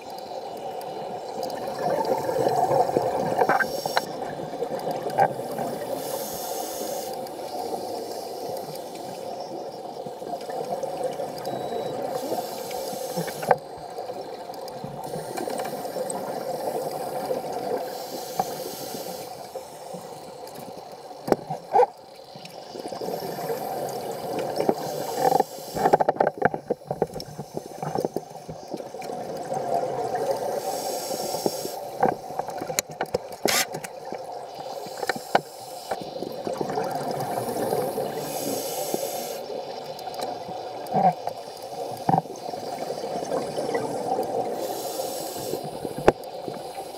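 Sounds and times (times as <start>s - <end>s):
steady underwater hum: 0.0s - 46.9s
gurgling exhaled bubbles: 1.4s - 6.0s, 36.0s - 38.4s
hissing regulator breaths: 3.3s - 4.2s, 5.2s - 9.6s, 12.1s - 13.6s, 15.0s - 21.2s, 22.3s - 26.1s, 30.4s - 32.2s, 34.6s - 36.4s, 37.1s - 39.6s, 43.9s - 46.9s.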